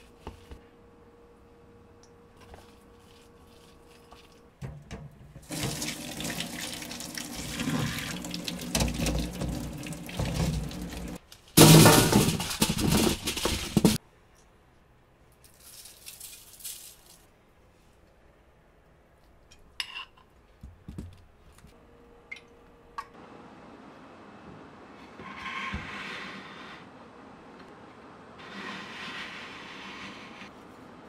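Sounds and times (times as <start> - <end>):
water pouring into a strainer: 5.5 - 11.2.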